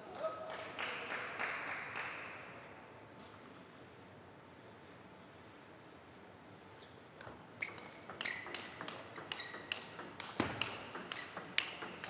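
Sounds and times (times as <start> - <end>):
table tennis ball clicks: 7.2 - 12.0.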